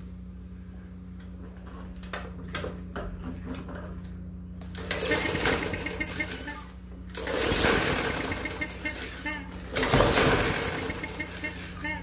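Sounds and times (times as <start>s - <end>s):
steady low hum: 0.0s - 12.0s
lawn mower pull-start clattering: 4.6s - 11.8s.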